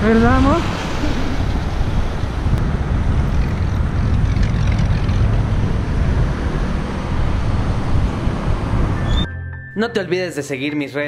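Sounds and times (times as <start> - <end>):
wind rumble on microphone: 0.0 - 9.3.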